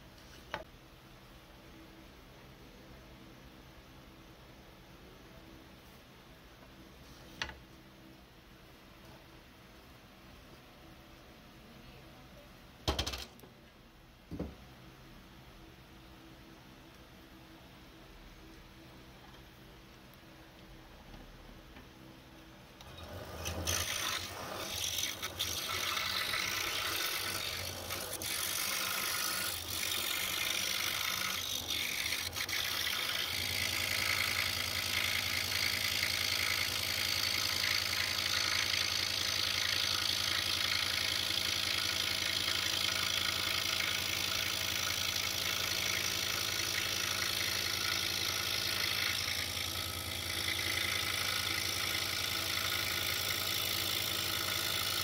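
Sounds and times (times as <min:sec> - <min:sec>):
scroll saw running: 0:22.8 - 0:55.0.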